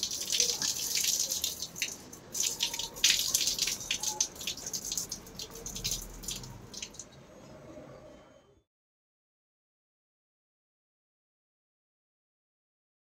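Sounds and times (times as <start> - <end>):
water splashing onto ground: 0.0 - 7.1.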